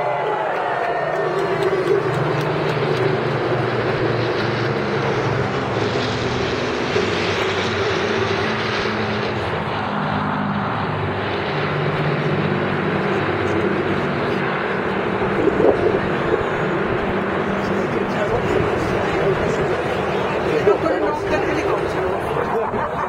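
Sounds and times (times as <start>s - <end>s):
piston aircraft engines droning: 0.0s - 23.0s.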